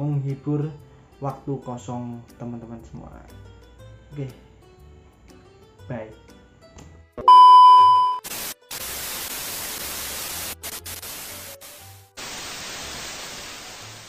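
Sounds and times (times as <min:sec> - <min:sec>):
static-like hiss: 0:08.2 - 0:14.0.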